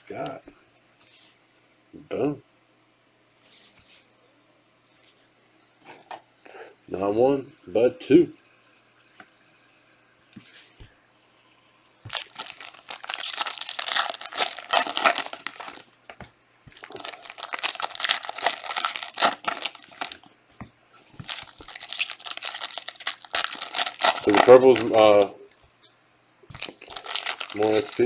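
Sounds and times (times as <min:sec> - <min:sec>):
foil wrappers crinkling and tearing: 0:12.1 - 0:16.0, 0:16.7 - 0:20.4, 0:21.2 - 0:25.3, 0:26.5 - 0:28.0.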